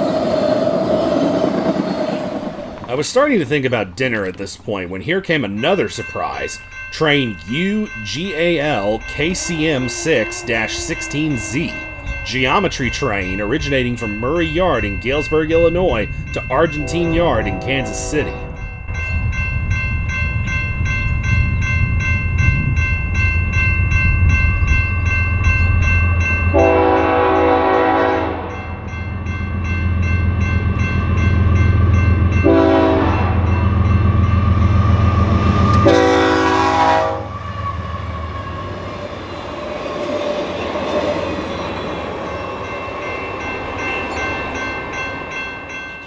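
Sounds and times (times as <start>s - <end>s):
diesel locomotive rumbling: 0.0s - 46.0s
crossing bell ringing: 2.1s - 46.0s
train air horn blasts: 9.3s - 12.3s, 16.8s - 18.6s, 26.5s - 28.6s, 32.4s - 33.5s, 35.7s - 37.9s.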